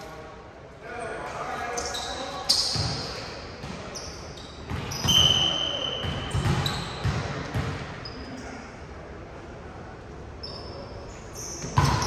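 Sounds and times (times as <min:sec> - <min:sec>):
sneakers squeaking: 0:01.0 - 0:08.7, 0:10.4 - 0:12.0.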